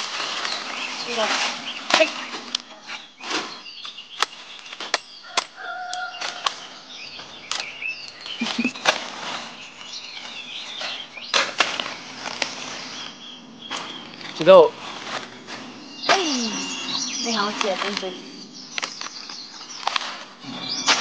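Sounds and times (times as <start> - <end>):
leaves rustling: 0.0 - 21.0
small birds twittering: 0.0 - 21.0
sickle chopping crisp stalks: 3.2 - 7.8.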